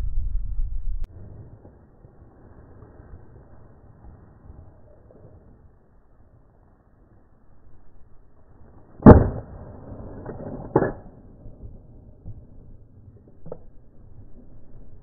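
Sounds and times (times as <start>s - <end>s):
slowed down shotgun shots: 9.0s - 12.6s.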